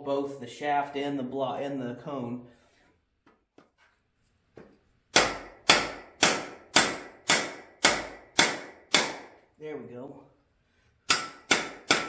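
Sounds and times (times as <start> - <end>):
hammer striking metal shaft: 11.1 - 12.0.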